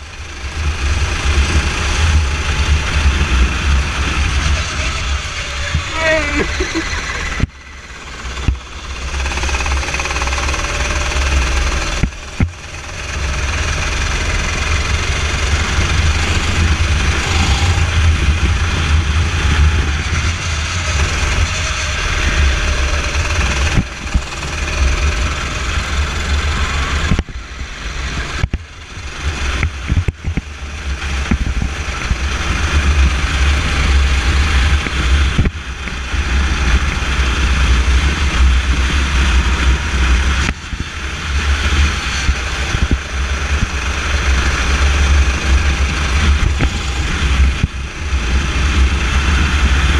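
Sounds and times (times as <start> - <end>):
go-kart engine running hard: 0.0 - 49.9
wind rumble on microphone: 13.6 - 49.9.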